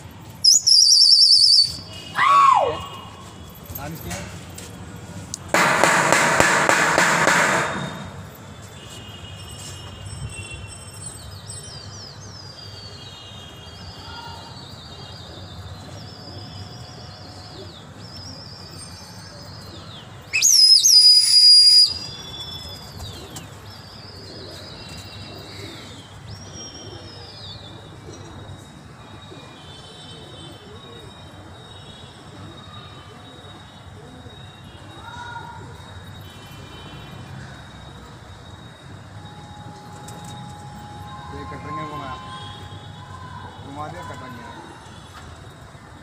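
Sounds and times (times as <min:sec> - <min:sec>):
loud shrill whistle: 0:00.4 - 0:03.2, 0:20.4 - 0:22.7, 0:39.2 - 0:45.1
high sliding bird calls: 0:00.5 - 0:01.8.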